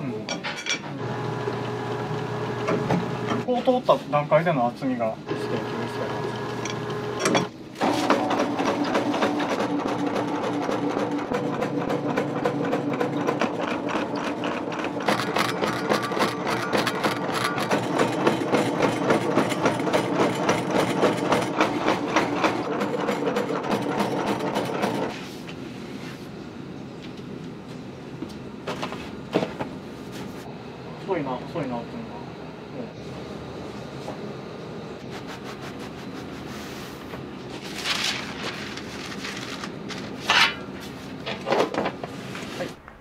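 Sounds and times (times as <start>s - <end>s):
noodle machine humming and clicking: 1.0s - 3.5s, 5.3s - 25.1s.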